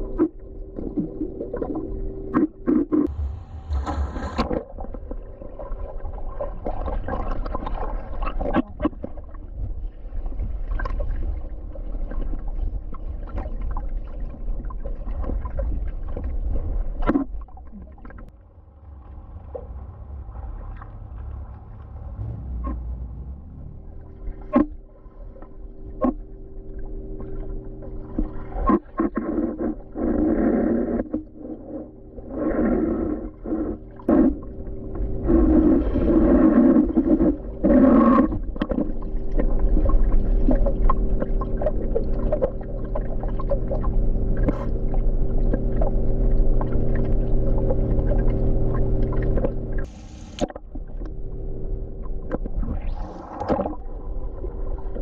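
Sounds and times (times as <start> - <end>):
steady hum: 0.0 - 5.3, 18.2 - 55.0
underwater low rumble: 0.0 - 55.0
water bubbling: 12.1 - 55.0
underwater clicks: 24.4 - 24.8, 26.0 - 26.3, 37.0 - 51.2.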